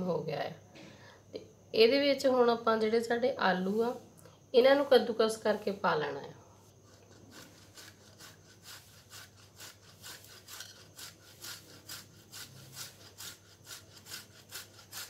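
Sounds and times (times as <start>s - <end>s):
potato grated on metal grater: 6.1s - 15.0s.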